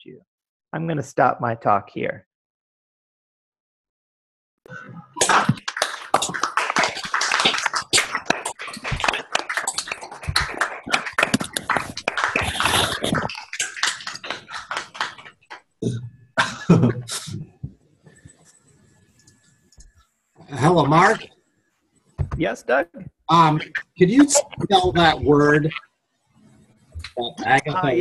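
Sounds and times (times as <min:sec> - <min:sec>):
people clapping: 0:05.2 - 0:15.6.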